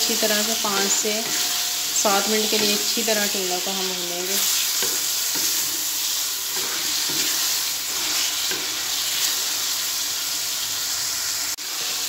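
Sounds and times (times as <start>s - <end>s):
spatula scraping and stirring: 0.0s - 9.6s
vegetables sizzling in oil: 0.0s - 12.0s.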